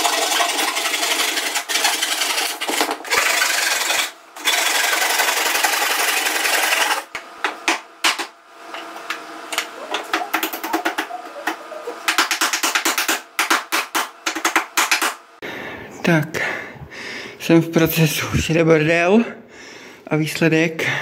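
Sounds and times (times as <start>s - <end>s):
hand saw cutting wood: 0.0s - 7.1s.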